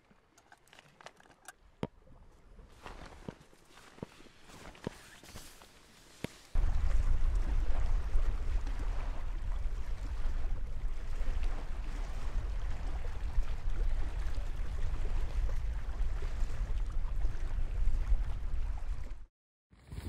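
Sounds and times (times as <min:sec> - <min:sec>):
strong wind buffeting microphone: 0:06.6 - 0:19.2.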